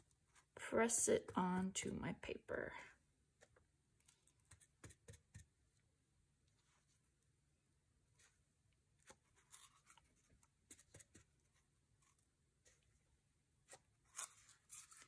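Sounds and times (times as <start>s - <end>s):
paper rustling: 9.0s - 12.9s, 13.6s - 15.0s.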